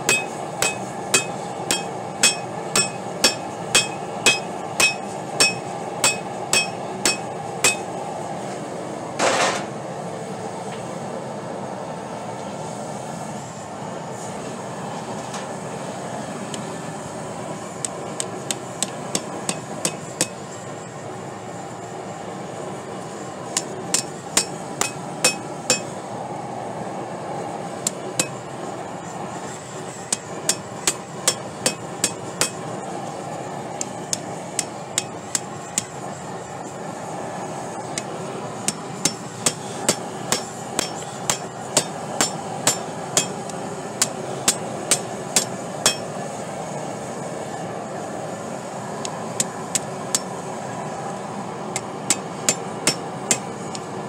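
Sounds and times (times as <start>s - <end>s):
hammer striking on anvil: 0.0s - 7.9s, 18.2s - 20.4s, 23.6s - 25.9s, 27.9s - 28.4s, 30.1s - 32.6s, 33.8s - 35.9s, 38.7s - 46.1s, 50.1s - 50.3s, 51.8s - 53.5s.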